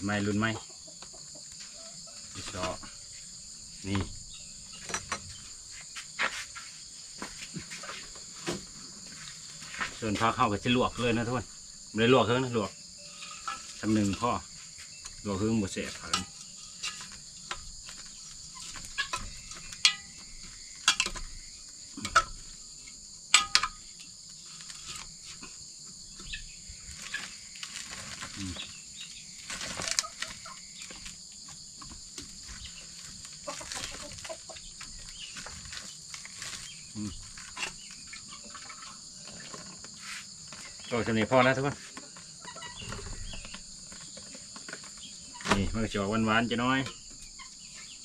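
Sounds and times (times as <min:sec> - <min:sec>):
high insect chirring: 0:00.0 - 0:48.0
sharp knocks and clatters: 0:16.0 - 0:21.4, 0:23.3 - 0:23.9.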